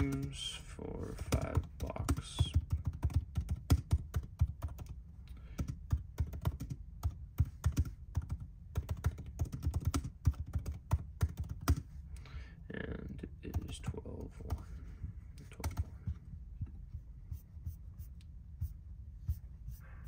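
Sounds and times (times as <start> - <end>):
laptop keyboard typing: 0.0 - 0.4, 1.2 - 11.9, 15.5 - 16.0.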